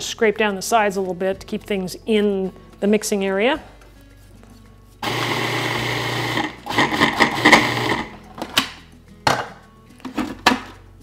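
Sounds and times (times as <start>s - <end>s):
food processor motor chopping: 5.0s - 8.1s.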